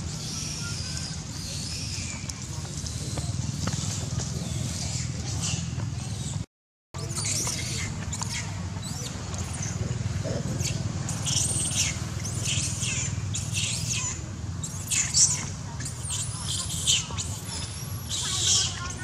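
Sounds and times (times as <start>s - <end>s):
monkeys squealing: 0.0s - 6.4s, 7.0s - 19.0s.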